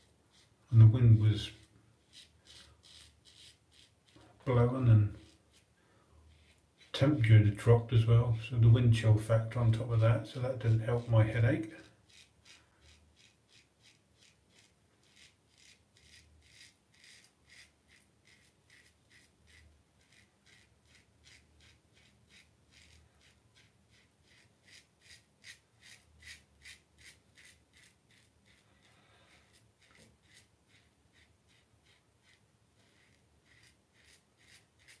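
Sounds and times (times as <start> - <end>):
razor scraping stubble: 0.0 - 5.7, 6.3 - 8.2, 9.4 - 35.0.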